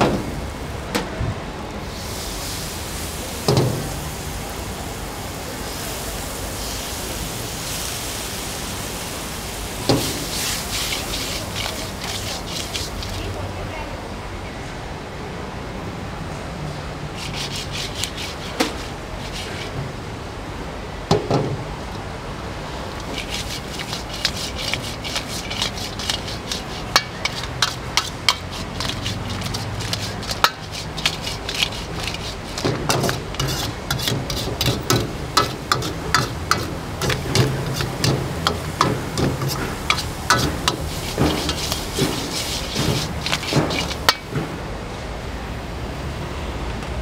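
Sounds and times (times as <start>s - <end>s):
steady frying hiss: 1.7s - 14.0s, 17.1s - 44.7s
metal ladle clanking on wok: 23.1s - 44.3s.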